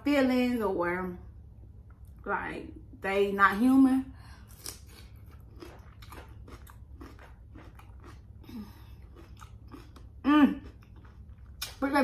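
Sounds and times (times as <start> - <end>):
soft hum of enjoyment: 1.0 - 11.8
chewing crisp vegetable: 4.5 - 12.0.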